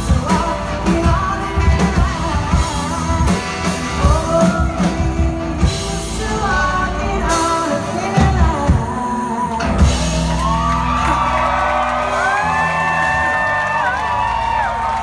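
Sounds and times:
woman singing: 0:00.0 - 0:10.4
live pop-rock band: 0:00.0 - 0:15.0
crowd shouting and whooping: 0:10.0 - 0:15.0.

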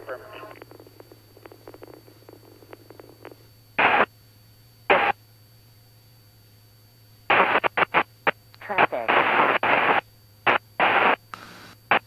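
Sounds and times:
faint radio chatter: 0:00.0 - 0:00.7, 0:04.9 - 0:05.2, 0:07.3 - 0:11.2
radio static bursts: 0:00.0 - 0:04.1, 0:04.9 - 0:05.2, 0:07.3 - 0:12.0
low steady hum: 0:00.0 - 0:12.0.

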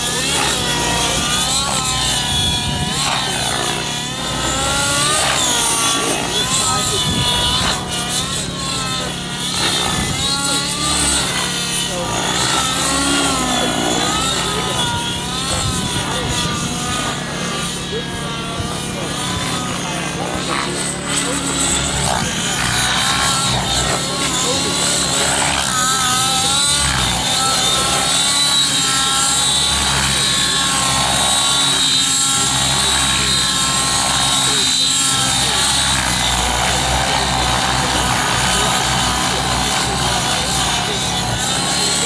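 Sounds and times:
model helicopter engine and rotors: 0:00.0 - 0:42.0.

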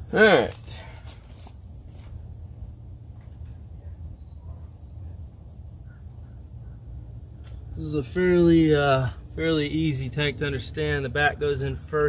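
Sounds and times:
steady low hum: 0:00.0 - 0:12.0
bird chirps: 0:03.2 - 0:07.5.

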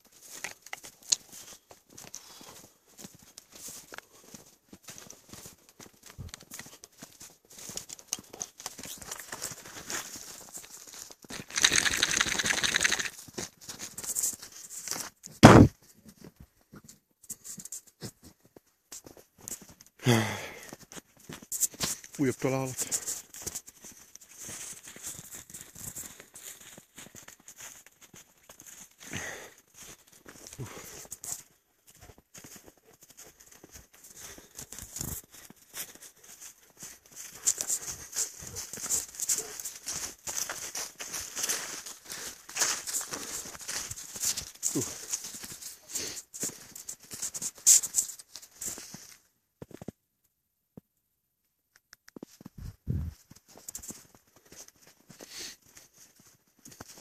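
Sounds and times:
rustling through dry grass: 0:00.0 - 0:15.2, 0:21.0 - 0:49.2, 0:52.6 - 0:57.0
crunching in snow and scrub: 0:00.0 - 0:16.4, 0:17.3 - 0:49.9, 0:52.2 - 0:57.0
loud low thump: 0:15.4 - 0:15.7
microphone handling noise: 0:15.4 - 0:15.7, 0:52.4 - 0:53.2.

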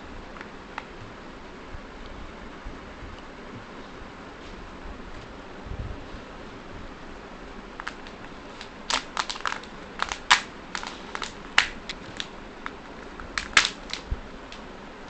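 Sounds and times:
foil lid crackling: 0:07.8 - 0:14.6.

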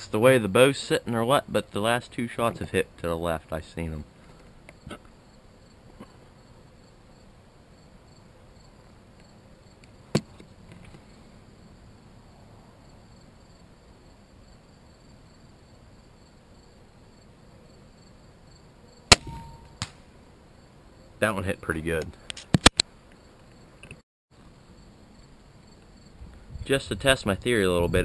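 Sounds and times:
insects chirping: 0:00.0 - 0:28.0
sharp click: 0:22.0 - 0:22.9.

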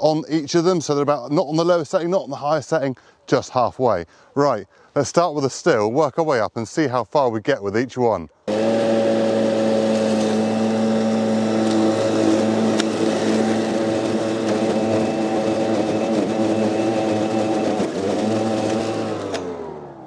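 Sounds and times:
electric lawnmower whining: 0:08.5 - 0:20.0
motor spinning down: 0:08.5 - 0:20.0.

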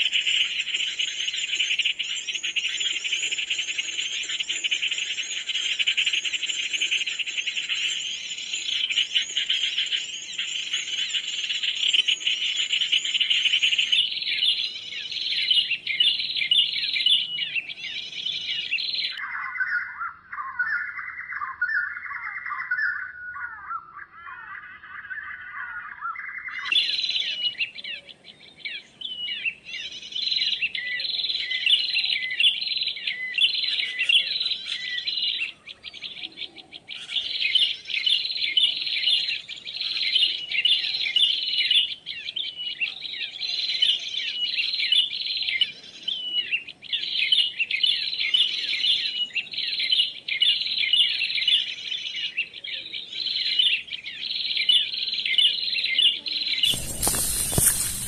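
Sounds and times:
small birds chirping busily: 0:00.0 - 0:58.0.

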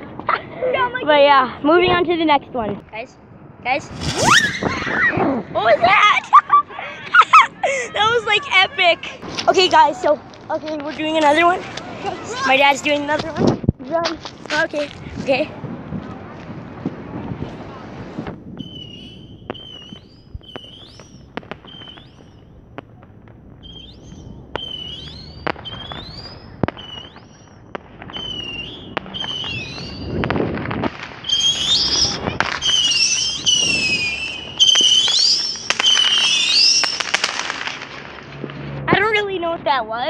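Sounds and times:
firework pops and crackles: 0:03.7 - 0:39.2
firework whistles: 0:03.8 - 0:05.4, 0:18.2 - 0:22.9, 0:23.6 - 0:38.3.

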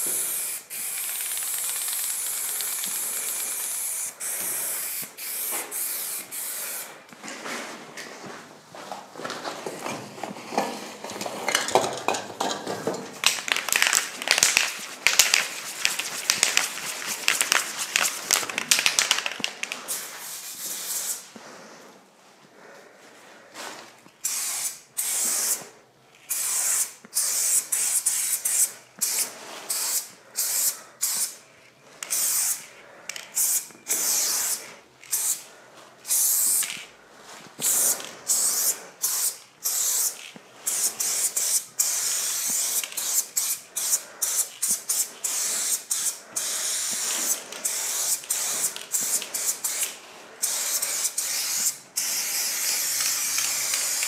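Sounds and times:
spray paint can hissing: 0:00.0 - 0:06.9, 0:13.2 - 0:21.2, 0:24.2 - 0:25.6, 0:26.3 - 0:31.4, 0:32.0 - 0:32.7, 0:33.4 - 0:35.4, 0:36.1 - 0:36.8, 0:37.6 - 0:54.0.

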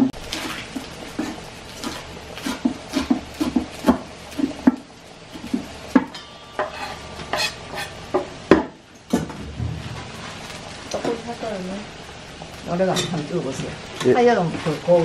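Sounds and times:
knife chopping on wooden board: 0:01.2 - 0:04.8.

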